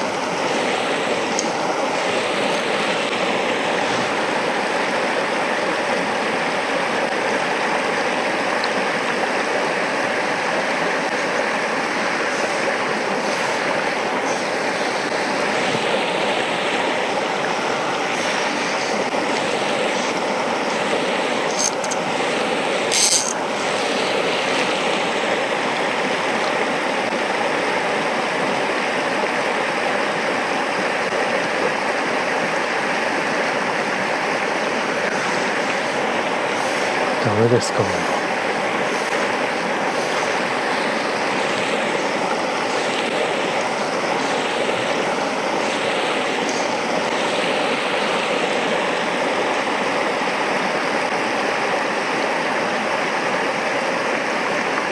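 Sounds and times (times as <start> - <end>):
stream rushing over stones: 0.0 - 54.9.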